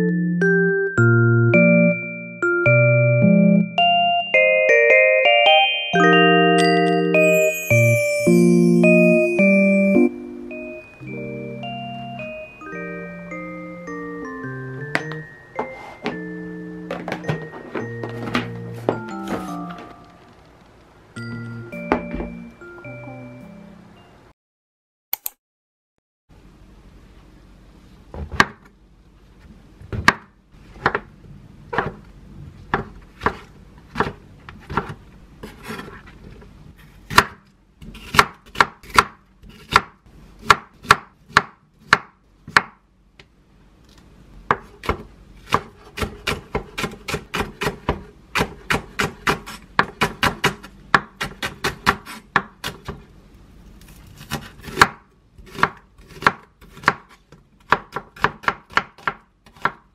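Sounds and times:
knife chopping on wooden board: 32.7 - 36.0, 37.1 - 42.8, 44.5 - 53.0, 54.2 - 59.8.

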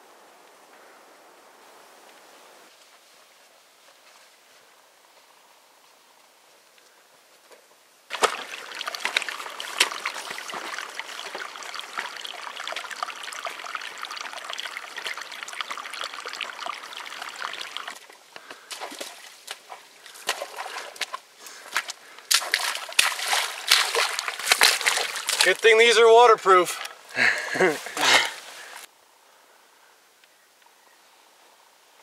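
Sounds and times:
boots squelching through mud: 8.1 - 25.8
water trickling over stones: 8.1 - 28.9.

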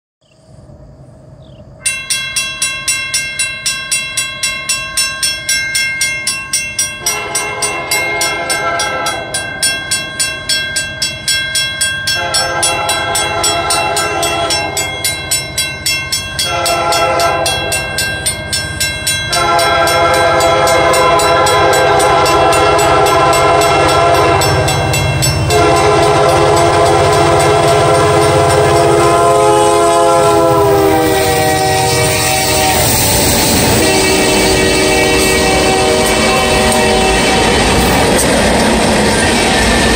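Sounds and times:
train engine and rail rumble: 0.2 - 39.9
crossing bell dinging: 1.8 - 39.9
locomotive air horn blasts: 7.0 - 9.4, 12.1 - 14.8, 16.4 - 17.9, 19.3 - 38.2.

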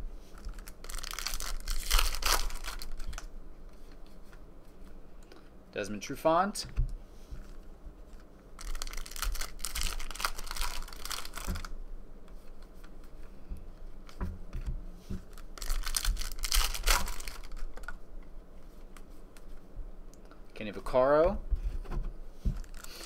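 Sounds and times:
foil wrappers crinkling and tearing: 0.4 - 3.3, 8.6 - 11.7, 15.3 - 18.0, 22.6 - 23.0.

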